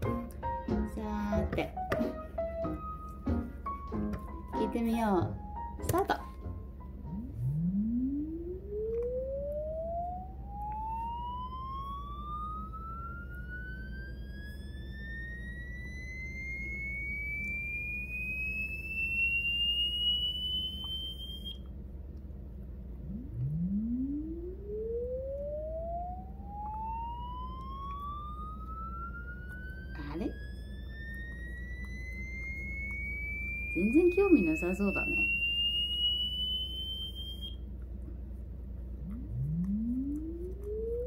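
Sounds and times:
rising electronic test tone: 6.8 - 21.7, 23.0 - 37.7, 39.0 - 41.0.

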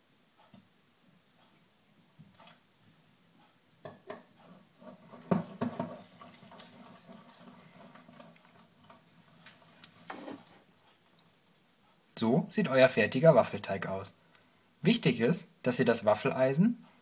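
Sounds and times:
whisk knocking on bowl: 5.1 - 6.0.

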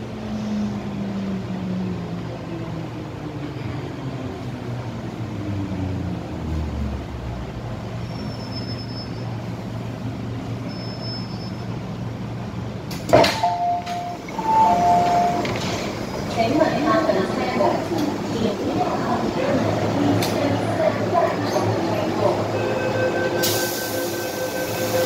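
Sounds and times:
train motors humming: 11.4 - 25.0
sharp clunk: 12.9 - 14.0.

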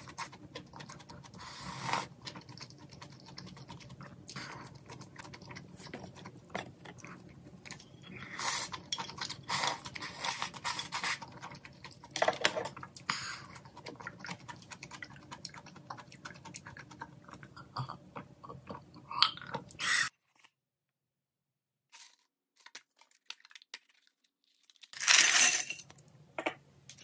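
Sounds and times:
slurping and chewing noodles: 0.0 - 20.4.

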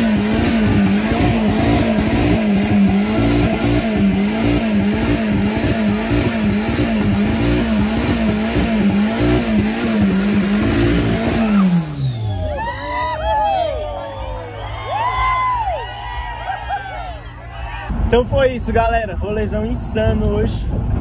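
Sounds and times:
car engine at high revs: 0.0 - 12.5
spinning tyre screeching: 0.0 - 13.2.

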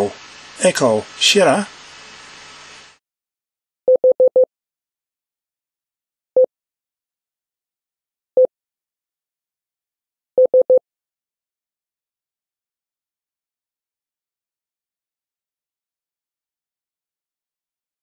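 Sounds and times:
morse code beeps: 3.9 - 4.5, 10.4 - 10.8.

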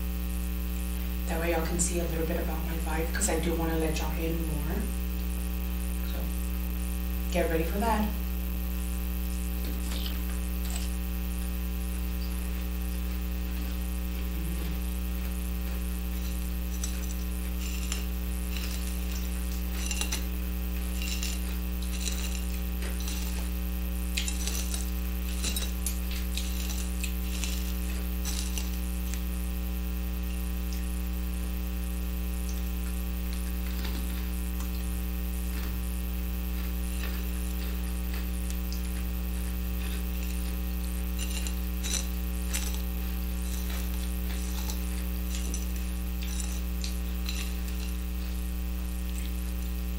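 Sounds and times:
electrical mains hum: 0.0 - 49.9
faint chewing crunches: 9.1 - 31.2, 32.3 - 49.9.

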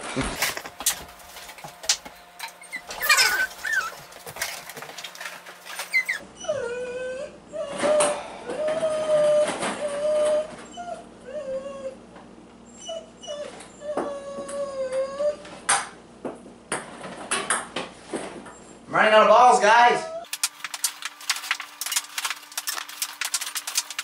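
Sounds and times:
dog whining: 2.4 - 4.5, 5.6 - 15.6, 19.7 - 20.3.

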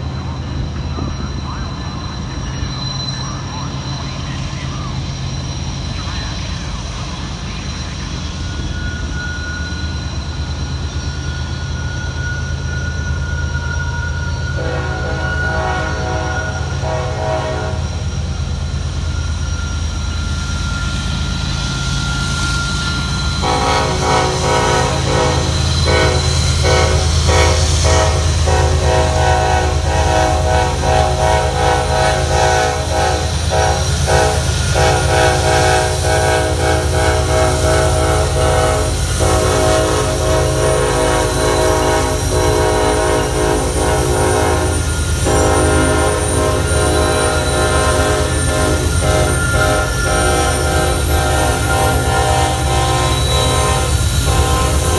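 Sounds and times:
locomotive horn blasts: 14.6 - 18.1, 23.4 - 54.9.

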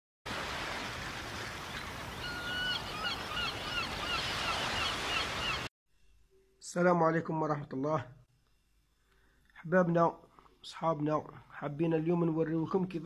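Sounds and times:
surf breaking on beach: 0.3 - 2.3
birds calling: 1.6 - 5.7.

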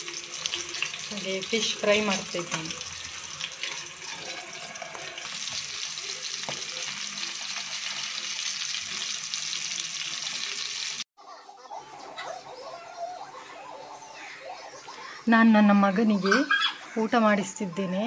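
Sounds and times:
fish sizzling in hot oil: 0.0 - 11.1.

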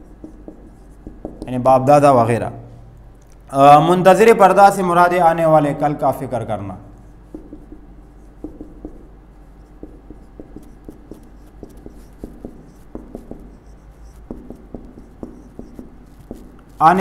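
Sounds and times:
marker squeaking on whiteboard: 0.0 - 1.5, 6.9 - 17.0.

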